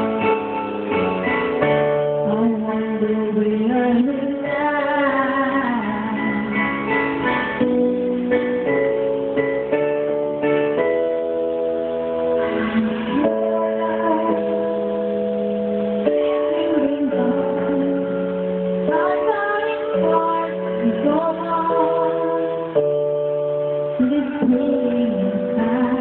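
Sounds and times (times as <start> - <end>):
karaoke backing music chords: 0.0 - 26.0
girl singing into microphone: 1.6 - 7.7, 12.3 - 15.3, 16.0 - 26.0.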